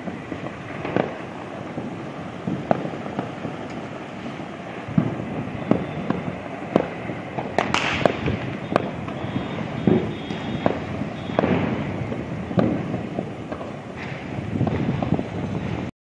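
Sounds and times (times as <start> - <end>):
firework hiss: 0.0 - 15.9
fireworks bangs: 0.0 - 15.9
low background noise: 0.0 - 15.9.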